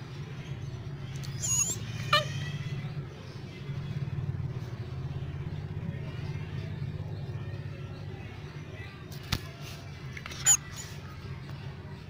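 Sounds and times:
puppy yelping: 1.2 - 2.8
puppy whining: 1.2 - 3.0, 10.4 - 11.1.

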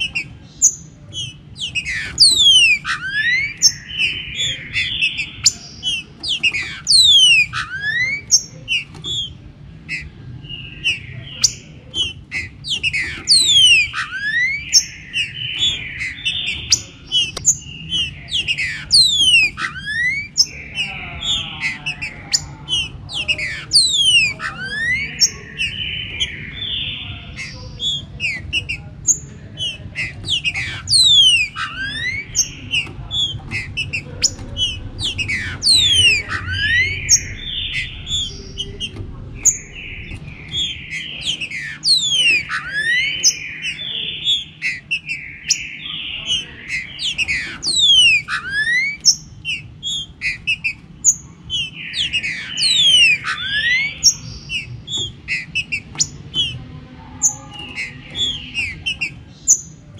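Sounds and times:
birds singing: 0.0 - 59.9
sharp sweeping bird notes: 29.7 - 43.8.

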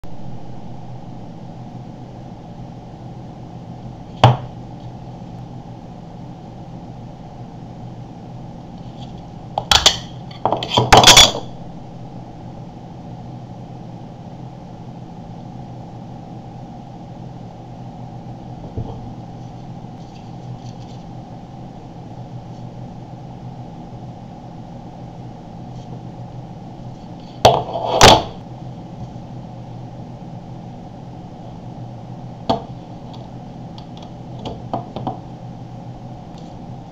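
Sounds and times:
steady low hum: 0.0 - 36.9.

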